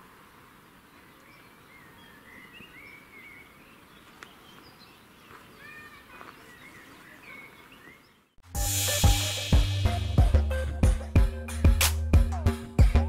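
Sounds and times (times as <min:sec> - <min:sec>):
birds whistling faintly: 0:00.0 - 0:08.4
outdoor background hiss: 0:00.0 - 0:10.8.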